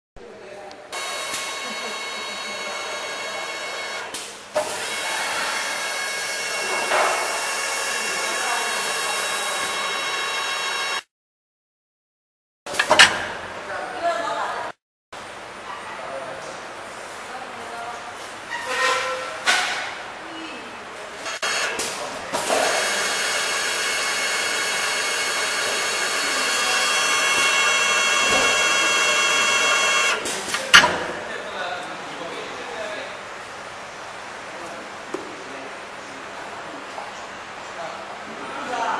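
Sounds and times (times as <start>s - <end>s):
machine high-pitched whine: 1.0s - 11.1s, 21.2s - 30.3s.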